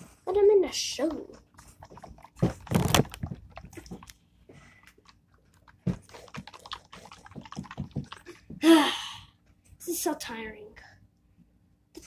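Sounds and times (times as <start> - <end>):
plastic jar shaking: 1.8 - 4.2, 5.8 - 8.5.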